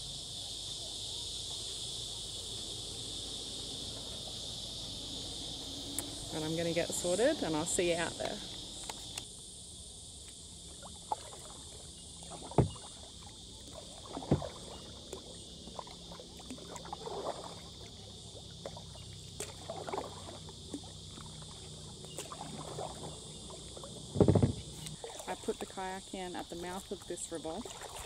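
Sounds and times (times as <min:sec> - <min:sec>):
insect chorus: 0:00.0 - 0:28.0
kayak paddle splashing: 0:10.4 - 0:28.0.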